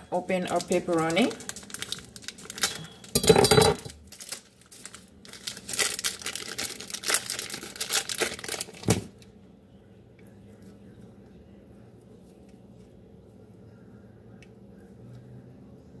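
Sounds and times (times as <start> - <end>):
plastic wrapper crinkling and tearing: 0.1 - 3.2, 3.8 - 9.3.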